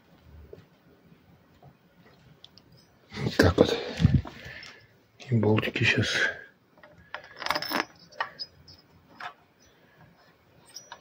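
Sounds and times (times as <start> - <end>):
bolts clinking on metal: 6.8 - 9.4.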